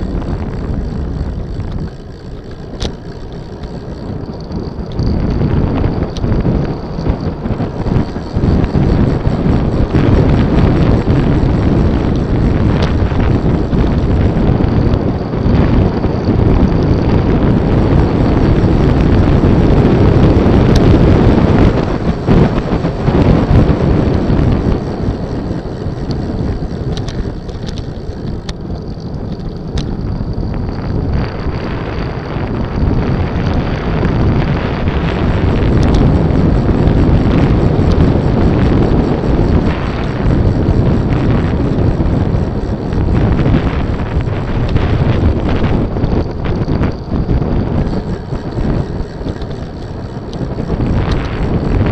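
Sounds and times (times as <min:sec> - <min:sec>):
wind buffeting microphone: 0:00.0 - 0:51.9.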